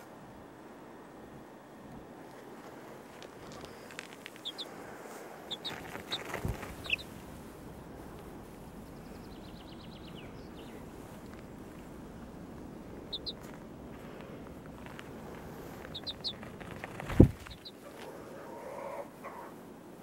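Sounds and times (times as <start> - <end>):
outdoor background noise: 0.0 - 20.0
chicks peeping: 3.4 - 7.2, 12.7 - 13.6, 14.8 - 18.1.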